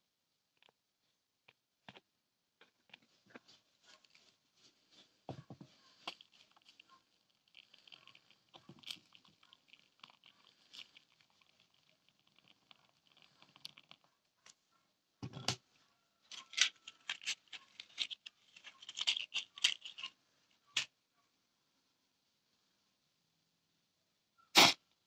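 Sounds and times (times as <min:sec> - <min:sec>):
crackling and popping molten metal: 0:05.1 - 0:14.6.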